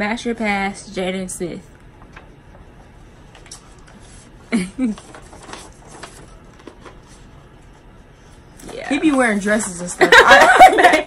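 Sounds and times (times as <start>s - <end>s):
faint clicks and rustles: 4.8s - 7.3s.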